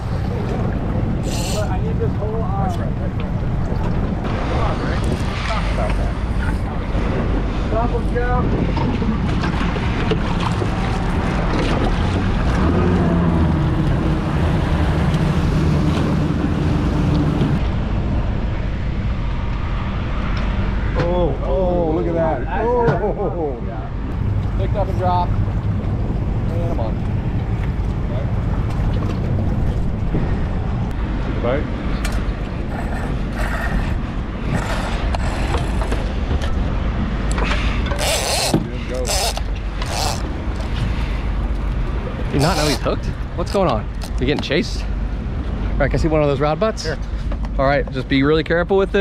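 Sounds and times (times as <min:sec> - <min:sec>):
outboard engines running: 0:00.0 - 0:17.7, 0:24.1 - 0:48.9
wind on microphone: 0:00.0 - 0:20.8
low rumble: 0:00.0 - 0:21.5, 0:23.7 - 0:37.9
fishing reel drag buzzing: 0:38.0 - 0:40.3.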